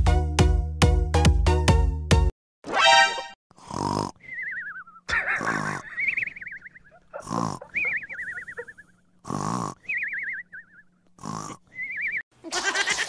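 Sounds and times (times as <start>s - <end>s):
dog snoring: 3.6s - 4.2s, 7.2s - 7.8s, 9.2s - 9.8s, 11.2s - 11.6s.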